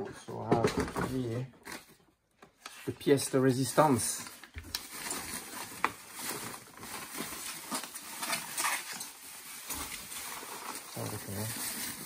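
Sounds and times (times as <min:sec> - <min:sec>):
bubble wrap crinkling: 0:03.1 - 0:12.0.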